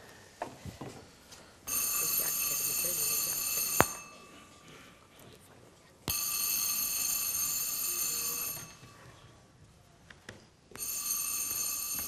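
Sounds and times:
telephone bell ringing: 1.7 - 4.5, 6.1 - 9.2, 10.8 - 12.0.

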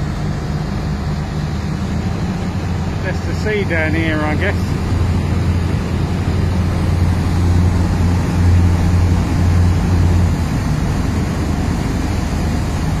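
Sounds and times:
boat engines droning: 0.0 - 13.0
churning wake water: 0.0 - 13.0
wind: 0.0 - 13.0.

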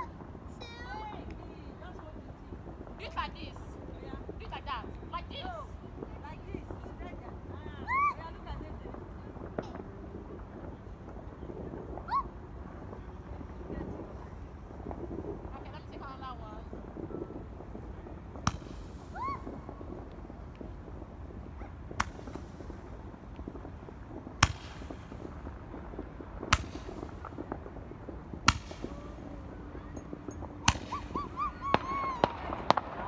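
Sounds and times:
firework bangs: 0.0 - 33.0
small firework pops: 0.0 - 33.0
firework whistles: 10.8 - 33.0.

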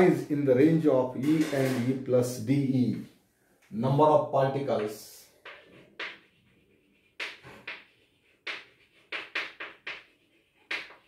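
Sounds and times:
chalk tapping and scraping on blackboard: 4.7 - 11.0.

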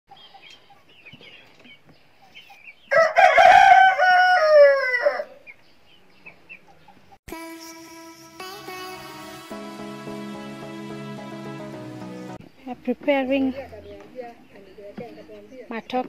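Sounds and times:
small birds chirping: 0.1 - 3.0, 5.3 - 7.2, 12.2 - 16.0
rooster crowing: 2.9 - 5.4
music: 7.3 - 12.4.

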